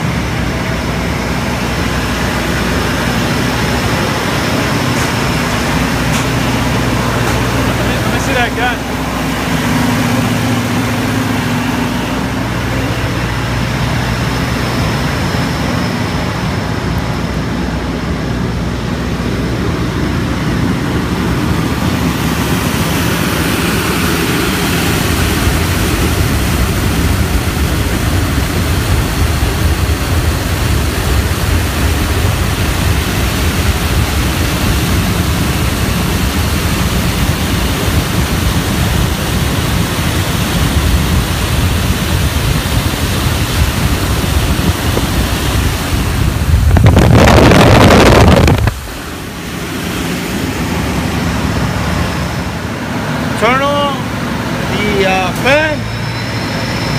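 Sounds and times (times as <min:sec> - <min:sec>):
machine hum: 0:00.0 - 0:56.9
air rushing onto microphone: 0:42.4 - 0:51.0.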